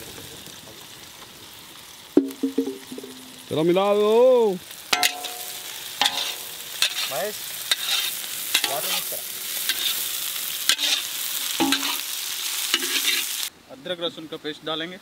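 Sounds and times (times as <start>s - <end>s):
onions sizzling in oil: 0.0s - 13.5s
metal ladle scraping pan: 4.9s - 13.4s.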